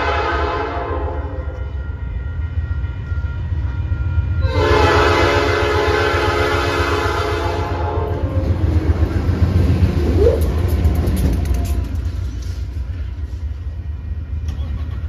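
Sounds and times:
locomotive horn blast: 0.0s - 8.6s
diesel locomotive engines rumbling: 0.0s - 15.0s.

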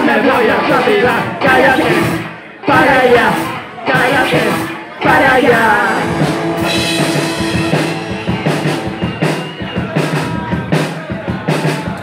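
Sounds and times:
drum kit beating: 0.0s - 12.0s
electric guitar chords: 4.0s - 10.4s.

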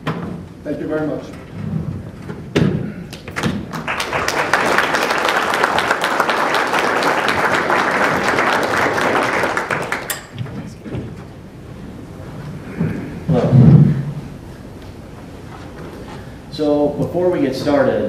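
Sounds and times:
audience applauding: 3.1s - 10.3s.

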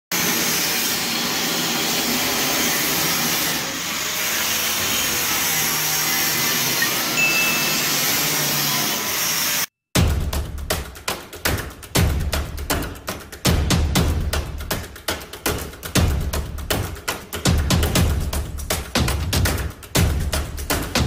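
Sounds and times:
power tool hissing: 0.2s - 9.7s
music with thumping beats: 10.0s - 21.0s.

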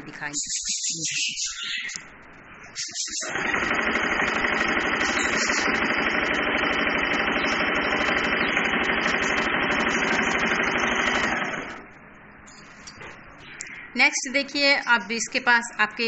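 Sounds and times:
electric sewing machine running: 3.2s - 11.9s.

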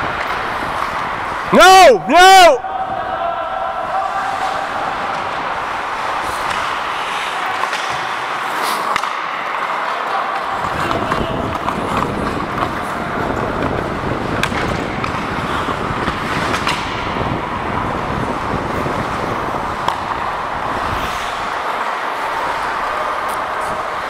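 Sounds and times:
skate blades on ice: 0.0s - 1.6s, 2.4s - 24.0s
stick hitting puck: 4.2s - 17.4s, 19.8s - 24.0s
wind on microphone: 10.6s - 21.6s.

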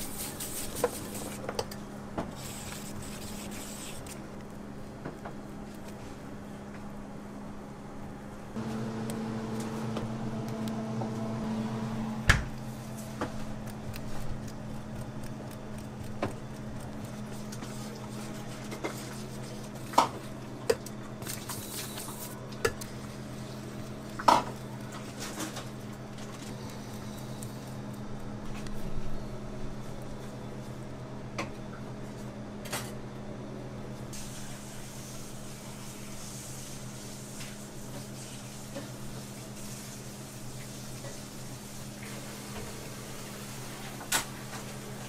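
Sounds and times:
steady low hum: 1.6s - 34.1s
palette knife smearing frosting: 2.4s - 4.2s.

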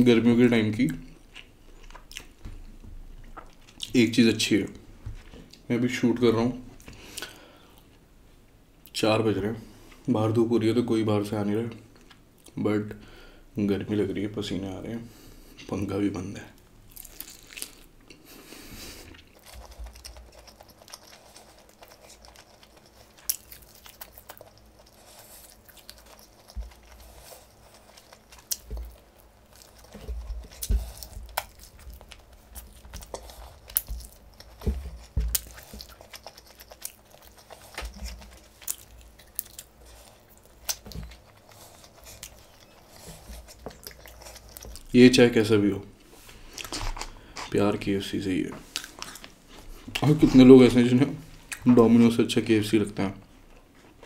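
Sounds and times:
person chewing crispy chicken: 1.2s - 3.9s, 16.8s - 45.0s.

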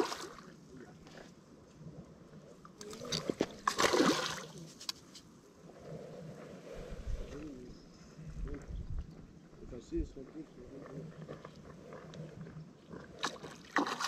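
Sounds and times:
water splashing: 0.0s - 0.5s, 2.8s - 4.6s, 13.2s - 14.0s.

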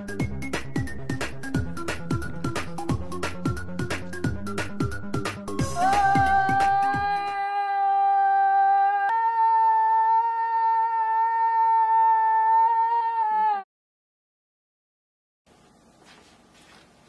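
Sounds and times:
boy singing a long note: 5.6s - 12.0s.

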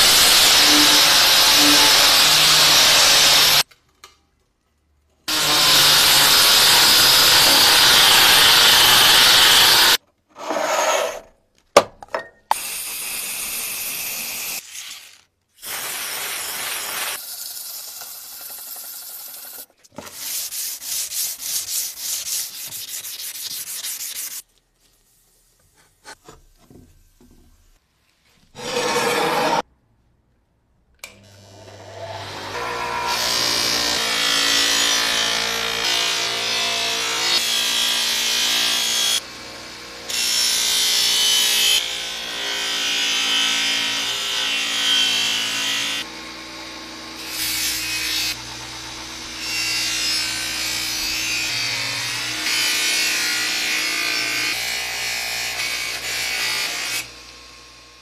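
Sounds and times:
loud scrape: 7.4s - 11.3s, 28.5s - 29.7s.

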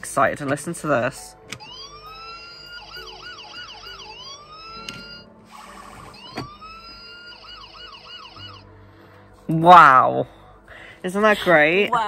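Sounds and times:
toy electronic siren: 1.6s - 8.8s.

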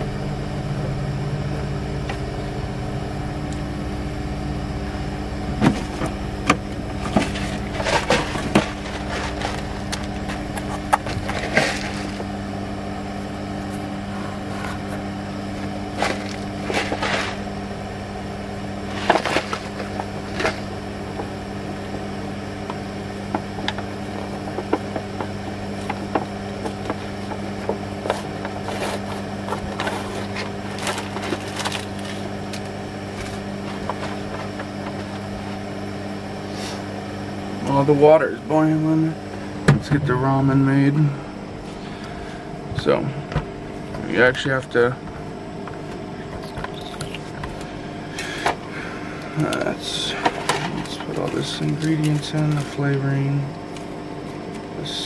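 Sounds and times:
mechanical hum: 0.0s - 55.0s.

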